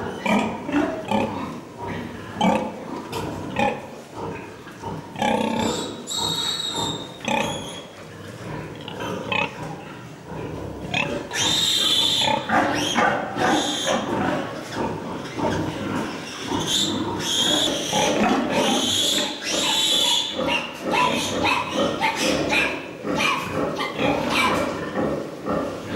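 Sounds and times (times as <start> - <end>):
pigs grunting: 0.0 - 25.9
pig squealing: 5.2 - 8.0, 10.9 - 25.0.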